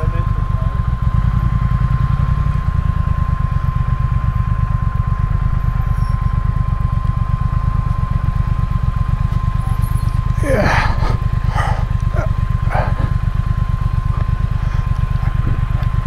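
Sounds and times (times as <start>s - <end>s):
motorcycle engine idling: 0.0s - 16.0s
thin steady high tone: 9.3s - 10.6s.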